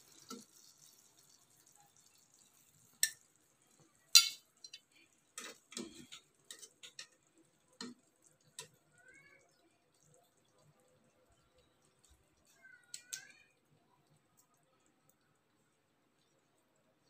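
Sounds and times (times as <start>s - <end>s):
utensils clinking on pan and plate: 2.9s - 3.3s, 4.1s - 8.0s.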